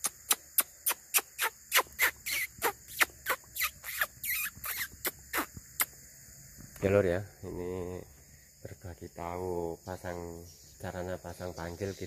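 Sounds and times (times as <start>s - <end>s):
swiftlets chirping: 0.0s - 5.9s.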